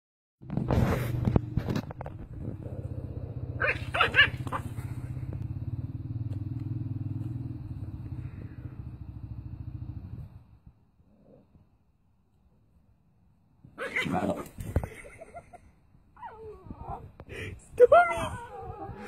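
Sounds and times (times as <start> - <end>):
puppy growling: 0.7 - 5.2, 13.8 - 15.0
puppy yapping: 3.6 - 4.7.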